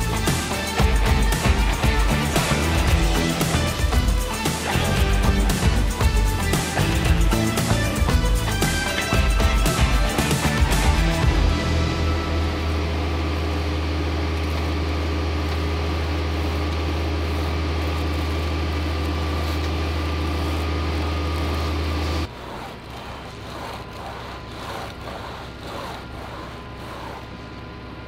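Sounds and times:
engine drone: 0.0 - 28.0
board scraping across wet concrete: 21.4 - 27.5.

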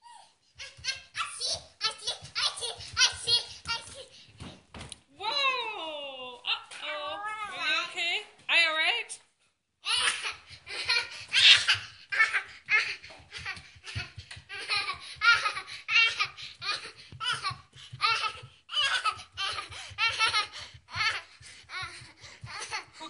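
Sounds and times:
toddler laughing: 9.9 - 23.0.

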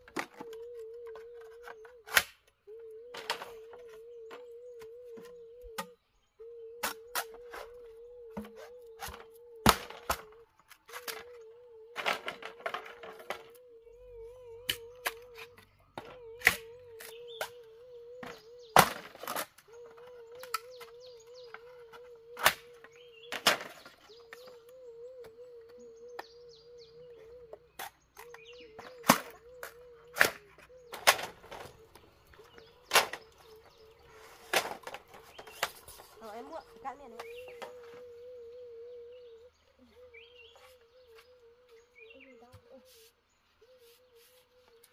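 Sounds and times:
steady wavering tone: 10.2 - 18.8.

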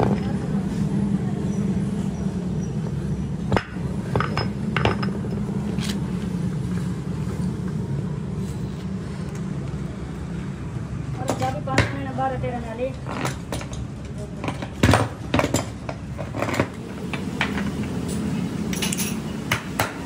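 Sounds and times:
low machine rumble: 0.0 - 14.5
metal parts clinking: 17.6 - 19.3.

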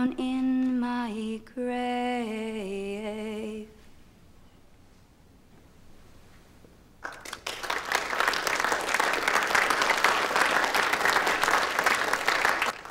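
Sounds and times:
audience applause: 7.0 - 12.9.

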